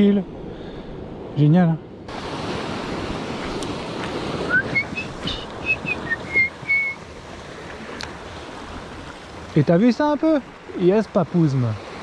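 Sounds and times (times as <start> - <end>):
sea noise: 0.0 - 12.0
wind: 0.0 - 12.0
whistled tune: 4.5 - 7.0.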